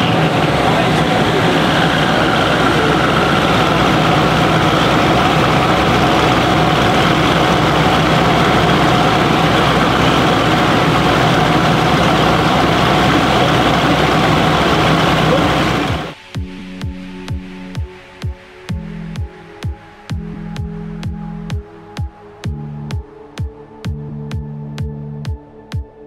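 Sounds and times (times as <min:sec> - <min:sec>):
car engine running on dyno: 0:00.0 - 0:16.2.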